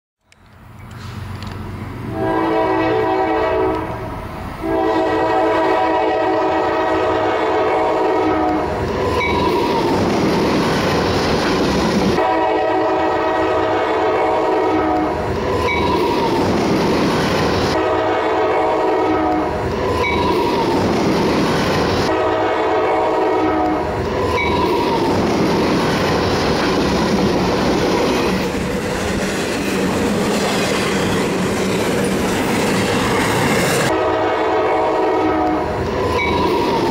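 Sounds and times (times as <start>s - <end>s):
train wheels rumbling on rails: 0.3s - 36.9s
locomotive air horn blasts: 2.1s - 4.0s, 4.6s - 9.6s, 12.1s - 16.2s, 17.7s - 19.7s, 22.0s - 24.8s, 33.9s - 35.8s.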